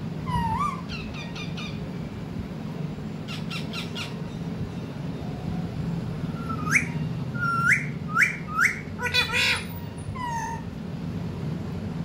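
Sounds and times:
parakeets whistled calls: 0.2s - 1.8s, 3.3s - 4.5s, 6.4s - 10.6s
parakeet squawk: 0.3s - 1.8s, 3.3s - 4.2s, 6.4s - 10.6s.

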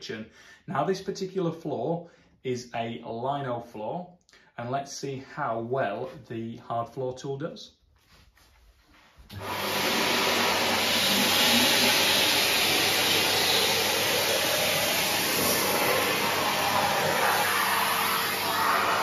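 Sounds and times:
vacuum cleaner running: 9.3s - 19.0s.

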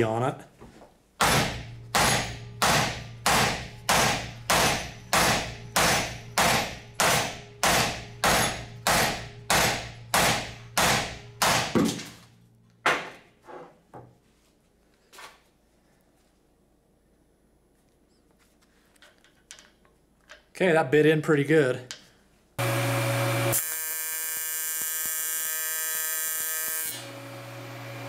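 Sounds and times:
sledgehammer pounding metal: 1.2s - 12.3s.

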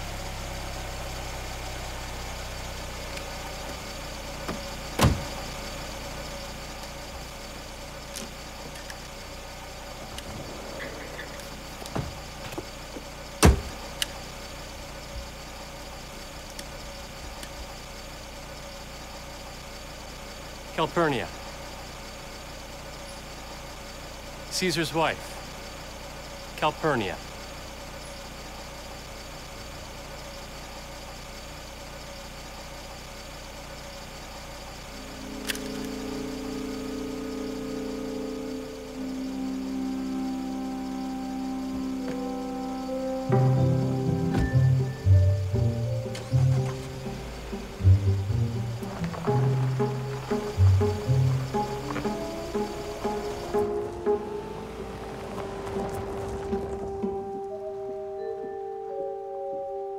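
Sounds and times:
car engine idling: 0.0s - 59.8s
car hood slamming: 4.5s - 5.4s, 13.4s - 13.8s
film score with held chords: 34.4s - 59.9s.

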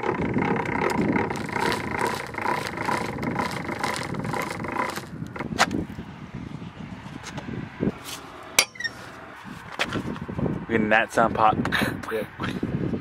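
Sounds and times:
car engine running: 0.0s - 6.1s.

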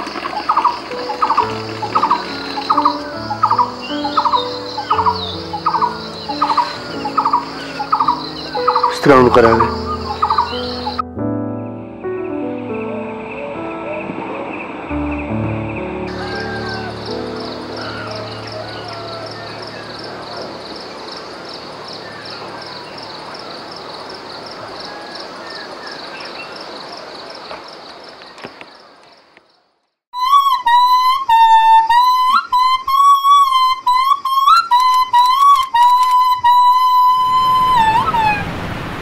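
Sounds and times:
high chirping: 0.0s - 11.0s, 12.1s - 26.6s, 30.2s - 38.4s
solo wind instrument melody: 0.4s - 14.1s, 15.2s - 21.8s, 30.2s - 38.4s.

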